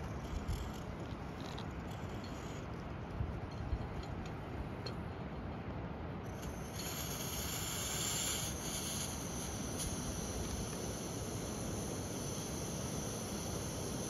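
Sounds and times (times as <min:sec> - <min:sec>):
stove burner hissing: 0:06.3 - 0:14.0.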